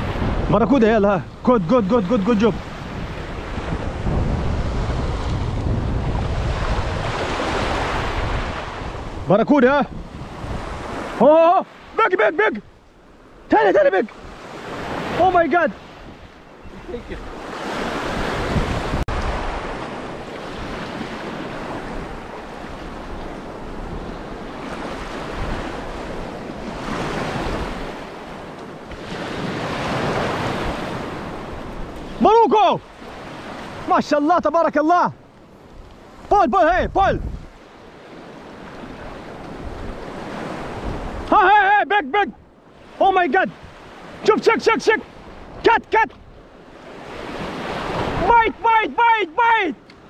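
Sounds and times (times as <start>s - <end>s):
wind rumbling on microphone: 0.0s - 11.2s, 15.9s - 32.2s, 35.5s - 41.3s
small waves breaking over rocks: 13.1s - 41.9s, 42.6s - 50.0s.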